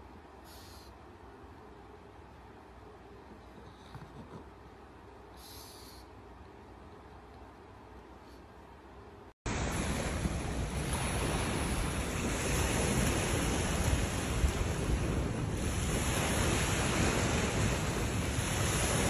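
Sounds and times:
wind buffeting microphone: 0:09.5 - 0:19.0.

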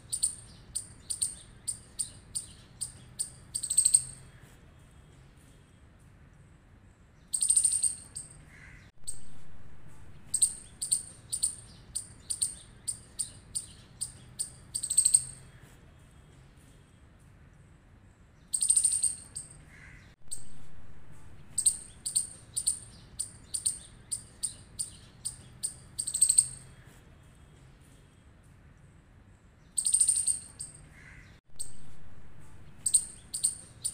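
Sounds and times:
chipmunk calls: 0:00.0 - 0:04.4, 0:07.3 - 0:09.2, 0:10.3 - 0:15.6, 0:18.5 - 0:20.5, 0:21.5 - 0:26.8, 0:29.7 - 0:31.8, 0:32.7 - 0:33.9.

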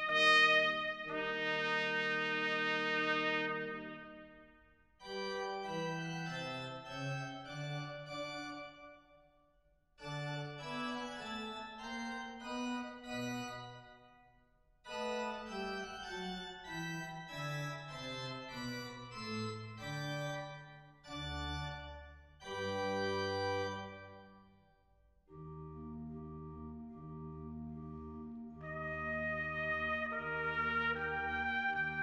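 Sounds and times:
organ music: 0:00.0 - 0:04.3, 0:05.0 - 0:09.0, 0:10.0 - 0:13.9, 0:14.9 - 0:24.4, 0:25.3 - 0:32.0.

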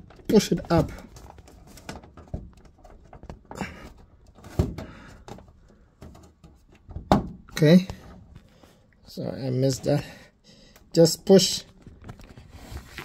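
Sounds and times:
plastic clicks and knocks: 0:00.0 - 0:08.0.

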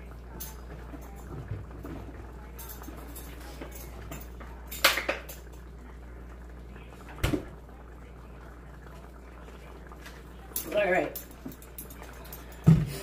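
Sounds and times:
faint steady hum: 0:00.0 - 0:13.0
sauce simmering in a pan: 0:00.0 - 0:13.0
kitchenware clinking: 0:00.3 - 0:05.6, 0:10.4 - 0:13.0.

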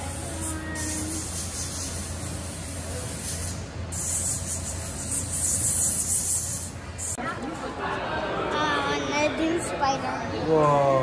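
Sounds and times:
airbrush hissing: 0:00.0 - 0:07.2.

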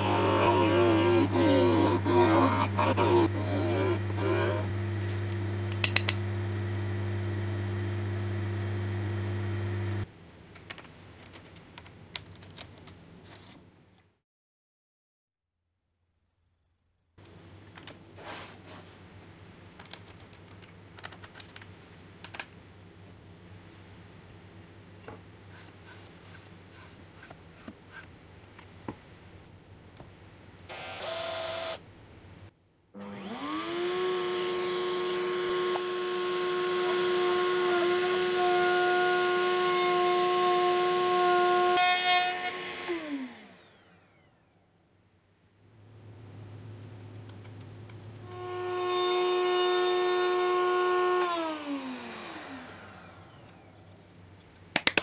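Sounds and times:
wood router whining: 0:00.0 - 0:10.1, 0:30.7 - 0:31.8, 0:33.0 - 0:44.5, 0:48.2 - 0:54.1.

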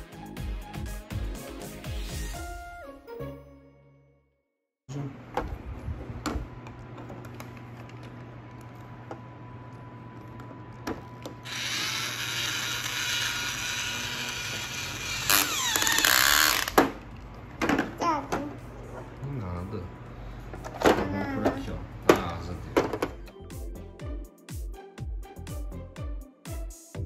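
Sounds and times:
toy power drill whirring: 0:11.4 - 0:16.8.

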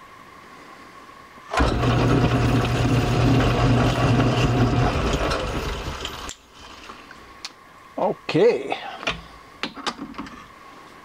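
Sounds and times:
lathe spinning down: 0:01.5 - 0:06.4
metal lathe humming: 0:01.5 - 0:06.4.

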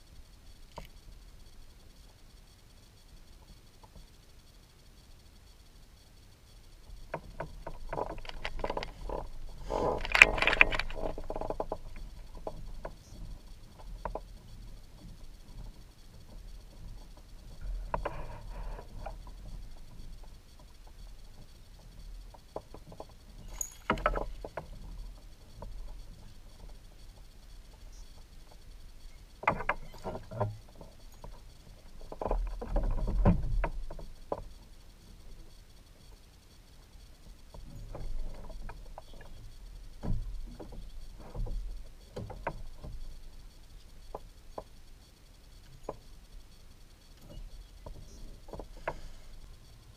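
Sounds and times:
fishing reel clicking and rattling: 0:00.2 - 0:40.0
knocks and rustling: 0:07.1 - 0:20.7, 0:21.3 - 0:28.6, 0:29.4 - 0:34.6, 0:37.5 - 0:43.2.

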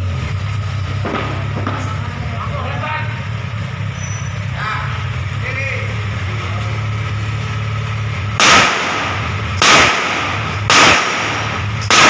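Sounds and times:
motorcycle engine idling: 0:00.0 - 0:09.6
pistol shots with echo: 0:08.4 - 0:12.0.

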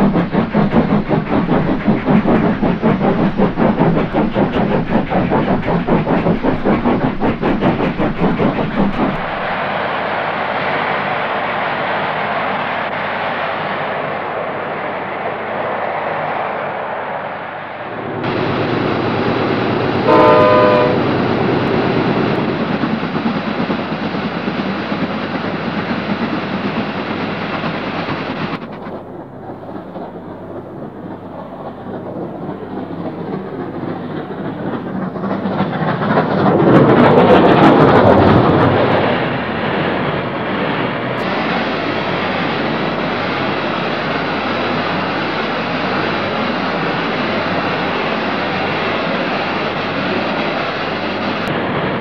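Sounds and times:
steam train running: 0:00.0 - 0:52.0
train whistle blast: 0:20.0 - 0:21.2.

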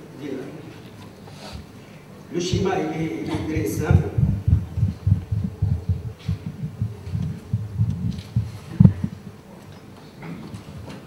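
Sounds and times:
rapid muffled thumps: 0:02.5 - 0:09.2.

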